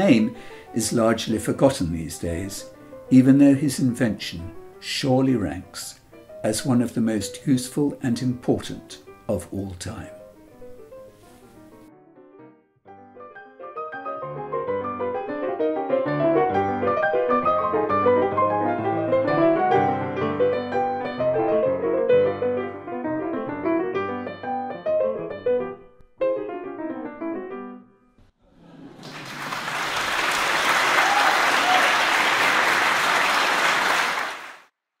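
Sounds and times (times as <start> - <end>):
solo piano music: 0.0 - 28.2
applause: 28.8 - 34.7.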